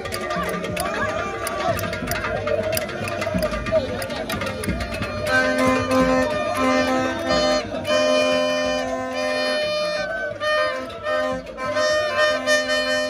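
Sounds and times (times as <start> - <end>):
long held horn notes: 5.0 - 13.0.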